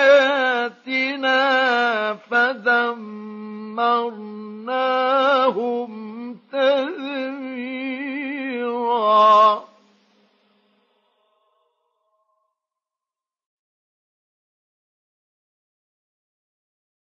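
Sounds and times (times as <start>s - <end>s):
man chanting recitation: 0.0s - 9.8s.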